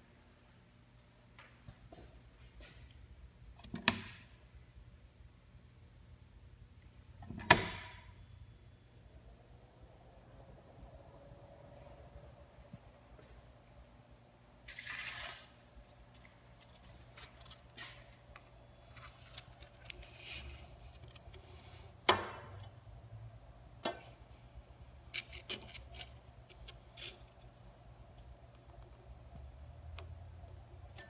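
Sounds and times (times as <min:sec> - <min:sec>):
faint steady hum: 0:00.0 - 0:31.0.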